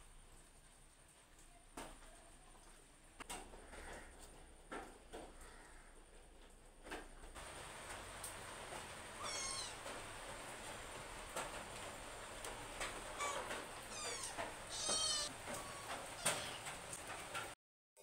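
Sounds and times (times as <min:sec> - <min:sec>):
cat meowing: 0:09.2 - 0:09.9, 0:13.2 - 0:16.7.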